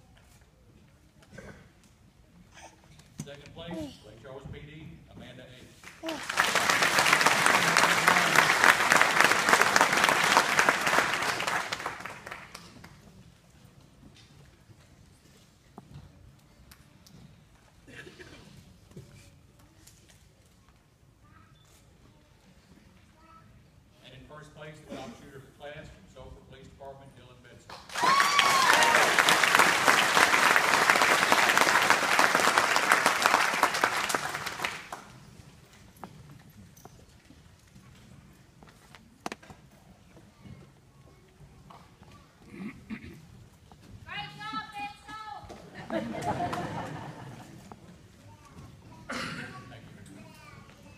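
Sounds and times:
audience clapping: 0:05.8 - 0:13.0, 0:27.7 - 0:35.3.

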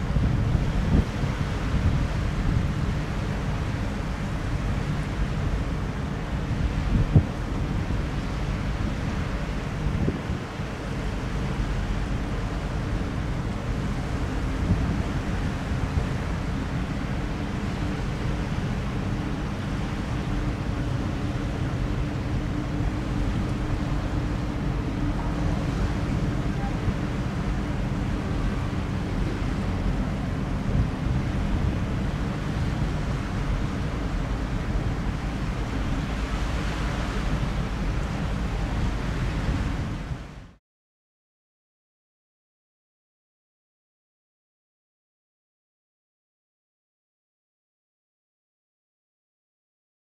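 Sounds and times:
ship engines rumbling: 0:00.0 - 0:40.4
wind buffeting microphone: 0:00.0 - 0:40.6.

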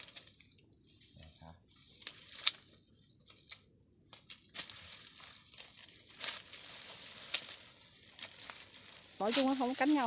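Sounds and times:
bag and dry leaves rustling: 0:00.0 - 0:00.6, 0:01.2 - 0:02.8, 0:04.5 - 0:10.0.

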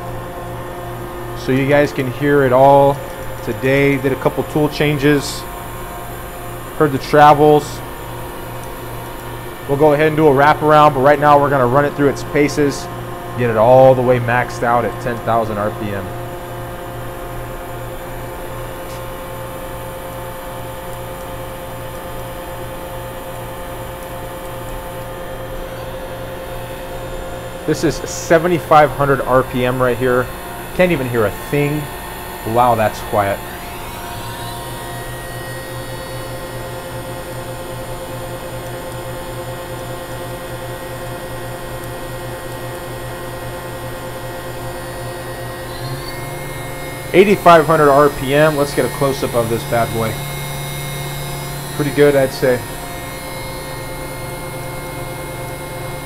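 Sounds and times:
machine spindle humming: 0:00.0 - 0:56.0
machine spindle whirring: 0:23.1 - 0:38.3, 0:44.1 - 0:56.0
low pulsing throb: 0:45.5 - 0:56.0.

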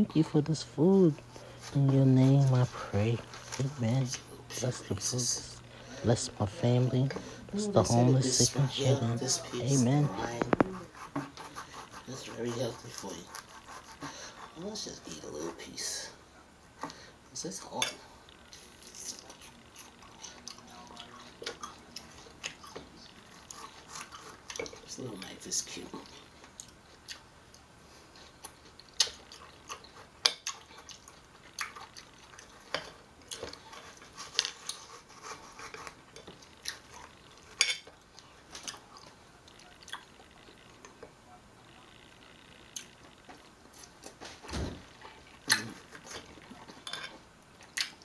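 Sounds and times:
wet chewing: 0:18.2 - 0:25.3, 0:26.0 - 0:41.2, 0:44.9 - 0:48.0.

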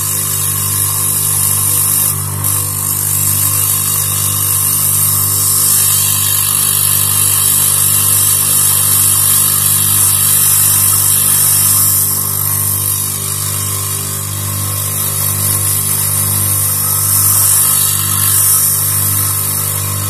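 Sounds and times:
lathe motor running: 0:00.0 - 0:20.0
sandpaper hissing on cork: 0:00.0 - 0:20.0.

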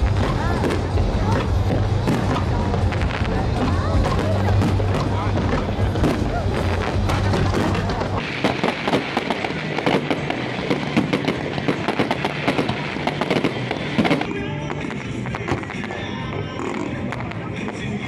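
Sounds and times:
fireworks crackling and popping: 0:00.0 - 0:18.0
show music: 0:00.0 - 0:18.0.

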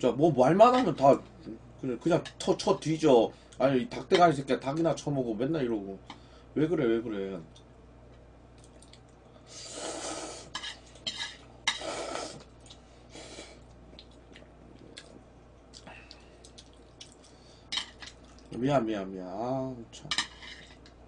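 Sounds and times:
slurping noodles: 0:09.5 - 0:10.5, 0:11.7 - 0:12.5.

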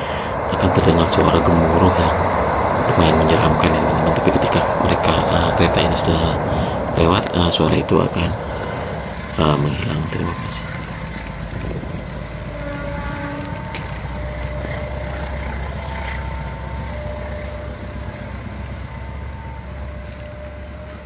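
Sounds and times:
person speaking: 0:00.0 - 0:10.8
train rumbling over bridge: 0:00.0 - 0:21.0.

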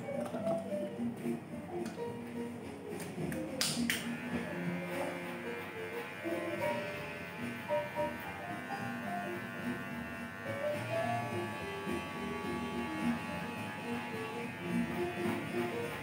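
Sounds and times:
music playing: 0:00.0 - 0:16.0
electric hair clipper buzzing: 0:03.7 - 0:16.0.

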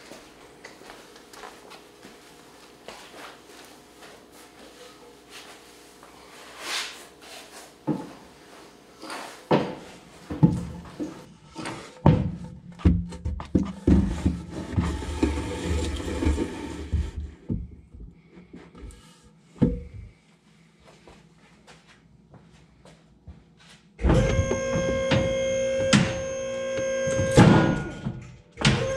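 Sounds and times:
dolly rolling and scraping: 0:13.1 - 0:17.5.

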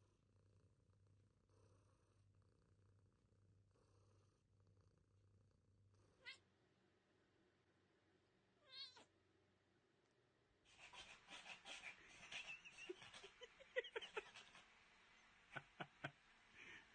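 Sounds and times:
cat purring: 0:00.0 - 0:16.9
cat chirp: 0:06.2 - 0:06.4, 0:08.6 - 0:09.1
cat meowing: 0:06.2 - 0:06.4, 0:08.6 - 0:09.1.

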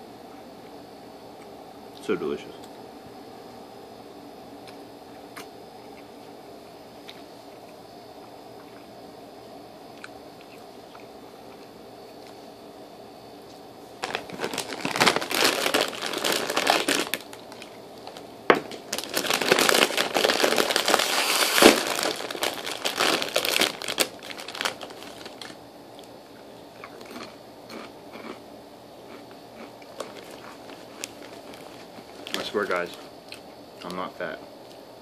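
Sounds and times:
bag snapping open: 0:14.0 - 0:25.6
plastic chip bag crinkling: 0:14.0 - 0:25.6, 0:29.1 - 0:33.1.

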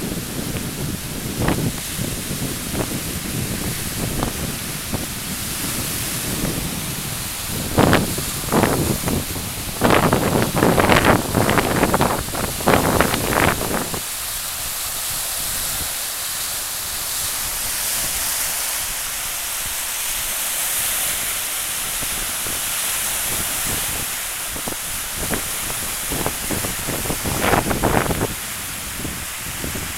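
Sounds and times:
wind buffeting microphone: 0:00.0 - 0:14.1, 0:23.2 - 0:29.9
waves breaking on shore: 0:00.0 - 0:29.9.

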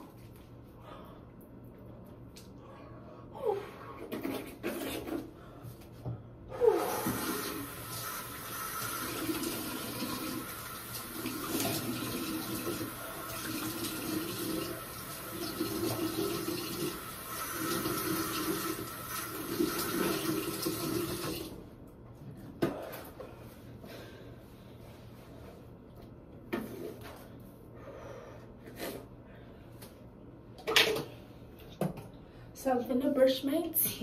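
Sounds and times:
sink tap running: 0:07.0 - 0:21.5.

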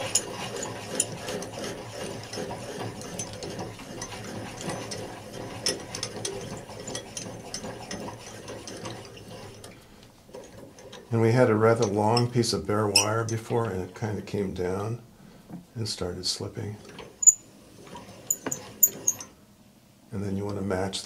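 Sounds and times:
hand-cranked winder clicking: 0:00.0 - 0:12.3, 0:16.8 - 0:19.3.

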